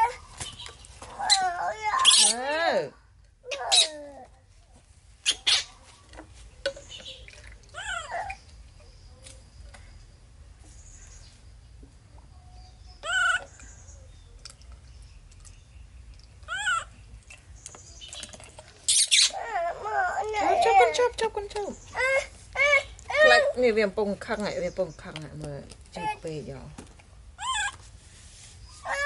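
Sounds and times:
baby monkey squeaking: 1.2s - 2.5s, 3.5s - 4.2s, 5.2s - 5.8s, 13.0s - 13.5s, 16.5s - 17.0s, 18.9s - 19.4s, 27.4s - 27.8s.

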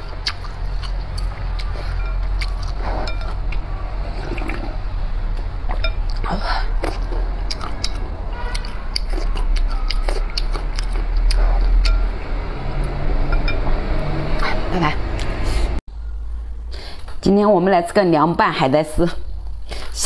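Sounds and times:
chewing and mouth clicks: 0.0s - 4.6s, 5.7s - 12.2s.

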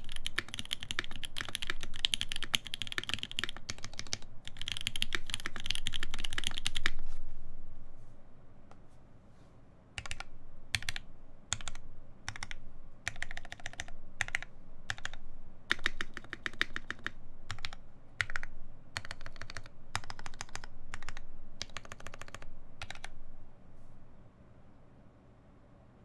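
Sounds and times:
mechanical keyboard keystrokes: 0.0s - 7.0s, 10.0s - 23.1s.

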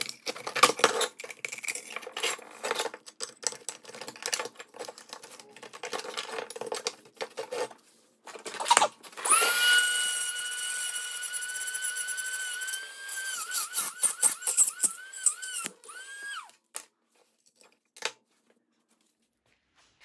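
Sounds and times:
metal and plastic parts scraping: 0.0s - 9.3s
rotary tool whining: 8.6s - 16.6s.

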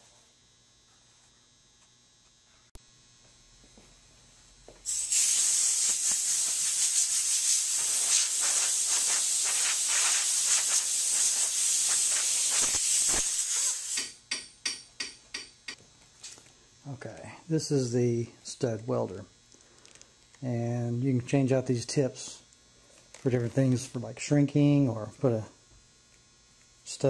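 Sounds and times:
compressed air hissing: 4.8s - 14.2s.

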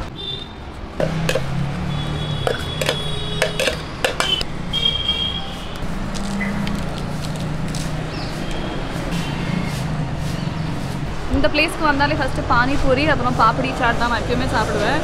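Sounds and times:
traffic engine hum: 0.0s - 15.0s
sharp clinks and knocks: 2.4s - 4.4s.

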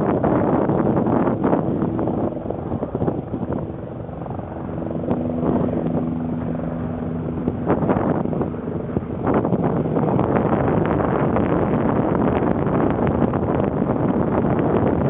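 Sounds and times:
steady low hum: 0.0s - 15.0s
wind buffeting microphone: 0.0s - 15.0s.

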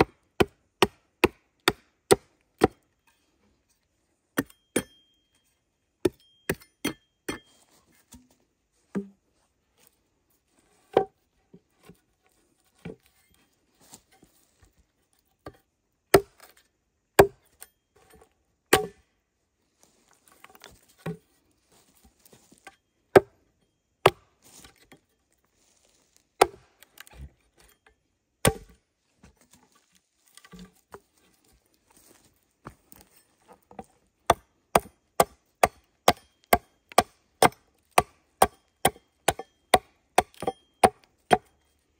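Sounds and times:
axe chopping wood: 0.0s - 2.8s, 4.4s - 5.0s, 6.0s - 7.5s, 10.9s - 11.1s, 15.4s - 16.6s, 17.2s - 17.6s, 18.7s - 19.0s, 23.1s - 23.4s, 24.0s - 24.8s, 26.4s - 27.3s, 28.4s - 28.8s, 33.7s - 41.6s.

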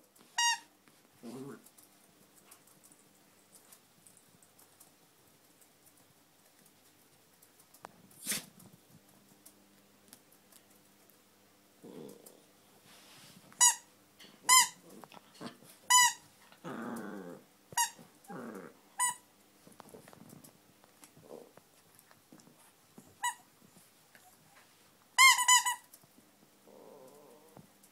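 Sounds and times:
squeaky toy squeaking: 0.4s - 0.6s, 13.6s - 13.8s, 14.5s - 14.8s, 15.9s - 16.2s, 25.2s - 25.8s
small dog growling: 1.2s - 1.8s, 11.8s - 12.6s, 14.8s - 19.2s, 21.1s - 21.6s, 26.6s - 27.7s.

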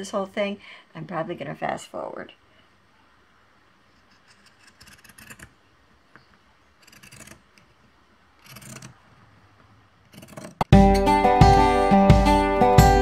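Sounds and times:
shears snipping fabric: 4.2s - 5.6s, 6.8s - 7.6s, 8.4s - 9.0s, 10.1s - 10.7s.

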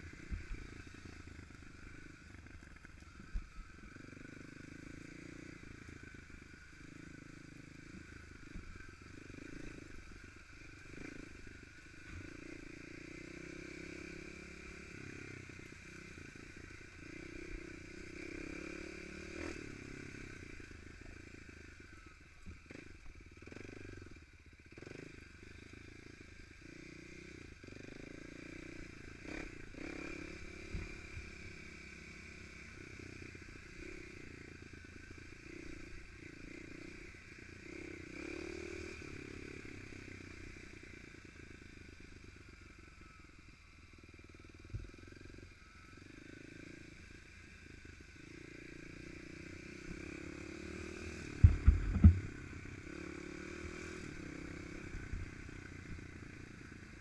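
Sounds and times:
dirt bike engine revving: 49.2s - 55.1s
bike knocks and rattles: 51.4s - 52.4s.

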